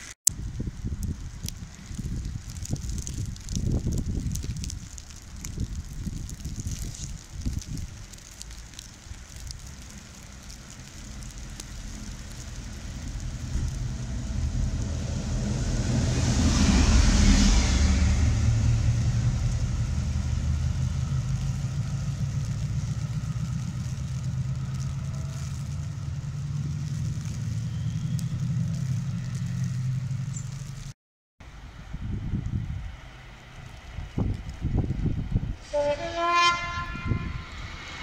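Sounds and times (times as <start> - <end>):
diesel locomotive passing: 7.5 - 30.5, 31.5 - 38.0
rush of wheel and air noise: 10.6 - 30.3, 31.5 - 38.0
low engine drone: 10.6 - 30.4.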